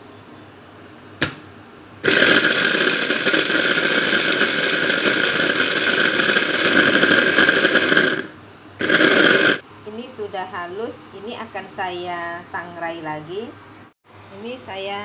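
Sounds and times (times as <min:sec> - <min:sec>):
food chopper motor whine: 0:02.0 - 0:09.6.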